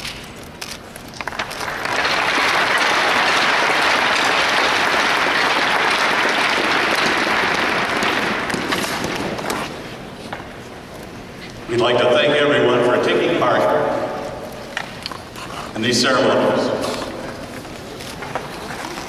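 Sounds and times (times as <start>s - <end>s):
crowd applauding: 1.2s - 9.1s.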